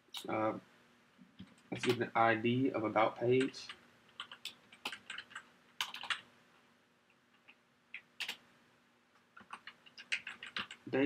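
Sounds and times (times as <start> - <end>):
typing on computer keyboard: 1.4 - 2.0, 3.4 - 6.3, 7.3 - 8.4, 9.4 - 10.9.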